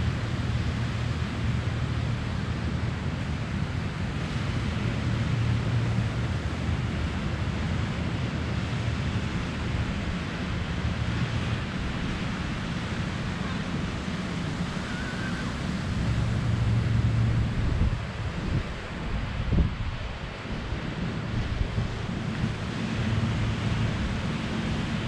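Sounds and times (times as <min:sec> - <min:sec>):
surf breaking on beach: 0:07.9 - 0:25.0
wind buffeting microphone: 0:07.9 - 0:25.0.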